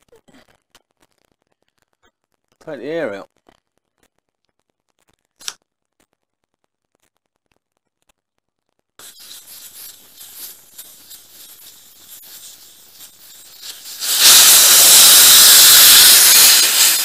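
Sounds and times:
air escaping from tyre valve: 9.0s - 17.0s.

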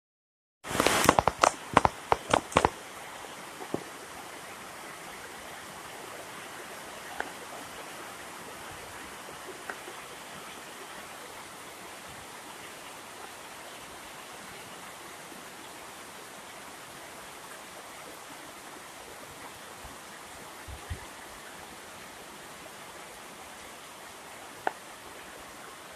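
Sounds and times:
rain falling: 0.6s - 25.9s
rapid loud knocks and clicks: 0.7s - 2.7s
rain drops ticking: 0.7s - 4.0s, 24.6s - 24.9s.

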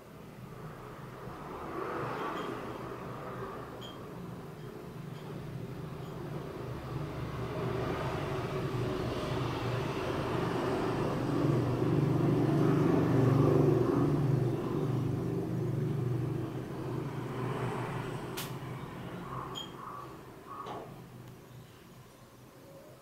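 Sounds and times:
vehicle engine hum passing: 0.0s - 21.5s
sharp click: 18.4s - 18.6s.

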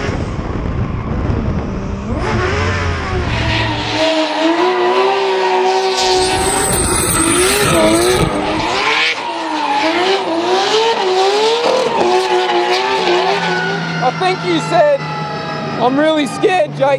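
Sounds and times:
car engine at high revs: 1.5s - 14.0s.

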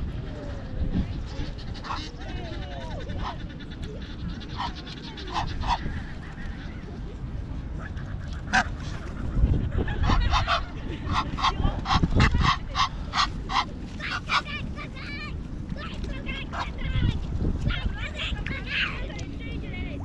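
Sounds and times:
geese honking: 1.4s - 6.6s, 7.8s - 15.0s.

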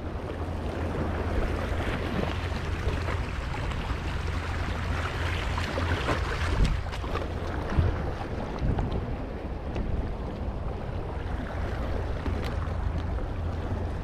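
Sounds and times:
wind buffeting microphone: 0.0s - 14.0s
small waves washing against rocks: 0.8s - 9.2s.

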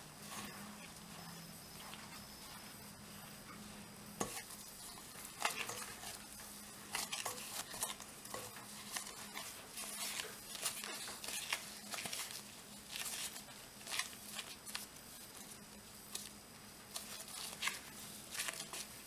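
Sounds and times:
dough squishing: 0.0s - 19.0s
plastic gloves crinkling: 4.2s - 19.0s.

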